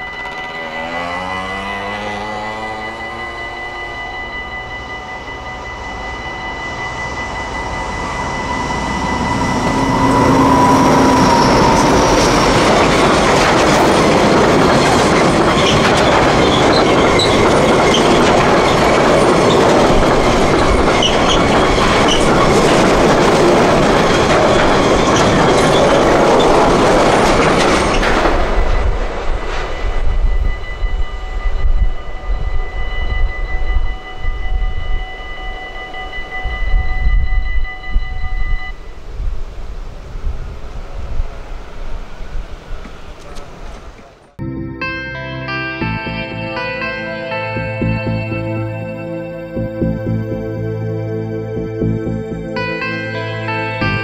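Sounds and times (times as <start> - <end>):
crossing warning bell ringing: 0.0 - 39.2, 41.4 - 54.0
freight train rumble and clatter: 4.3 - 39.1, 40.1 - 44.4.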